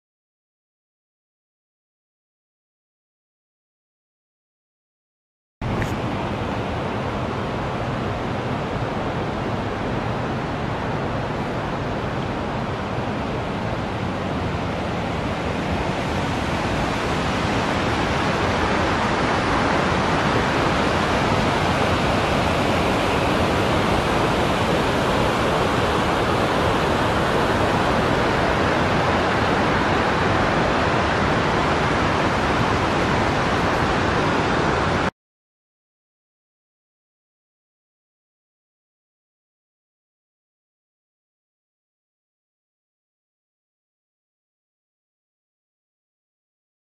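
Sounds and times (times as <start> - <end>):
river rushing: 5.6 - 35.1.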